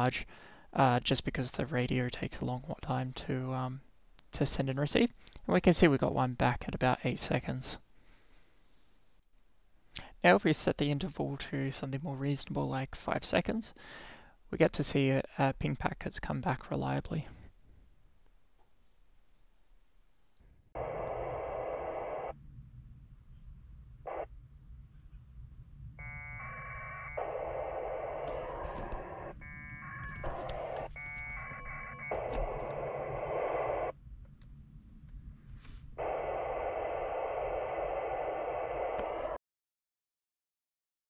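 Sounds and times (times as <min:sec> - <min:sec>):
low steady hum: 0:00.0 - 0:39.4
radio data bursts: 0:20.8 - 0:22.4, 0:26.0 - 0:34.0, 0:36.0 - 0:39.4
warbling tones: 0:25.9 - 0:33.9.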